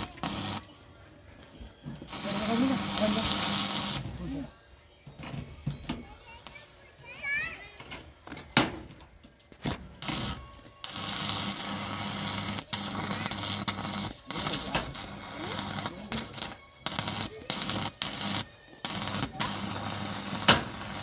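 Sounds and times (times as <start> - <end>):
welding arc crackling: 0.0 - 0.8, 2.0 - 4.5, 9.9 - 21.0
low welder hum: 0.0 - 1.3, 2.0 - 4.6, 9.7 - 21.0.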